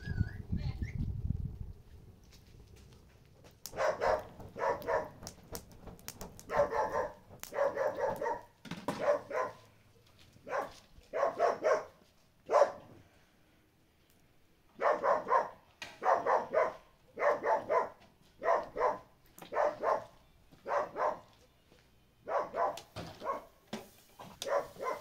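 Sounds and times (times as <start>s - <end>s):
dog barking: 3.7s - 5.2s, 6.5s - 9.7s, 10.4s - 12.9s, 14.8s - 21.3s, 22.2s - 23.6s, 24.4s - 25.0s.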